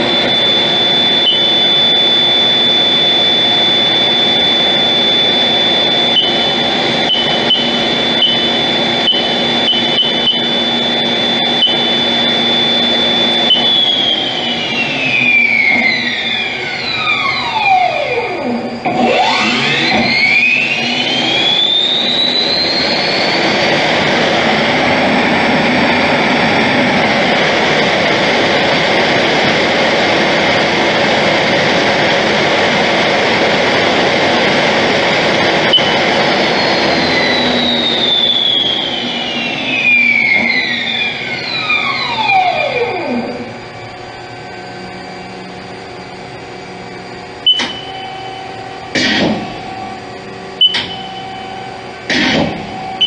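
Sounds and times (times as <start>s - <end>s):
lathe spindle whine: 0.0s - 53.0s
click: 47.5s - 47.9s, 50.6s - 51.1s.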